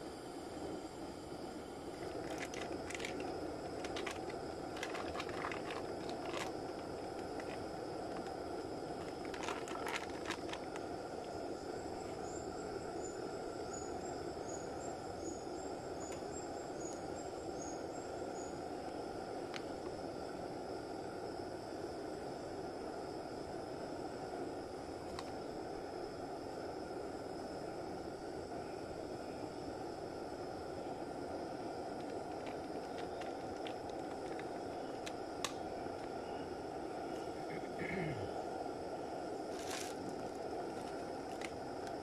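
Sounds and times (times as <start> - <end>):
gas stove burning: 0.0 - 42.0.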